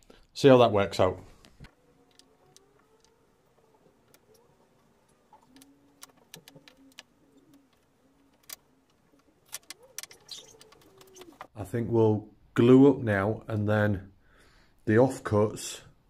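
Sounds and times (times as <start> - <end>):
pigeon cooing: 1.7 - 11.5
wood blocks clicking on board: 5.0 - 11.5.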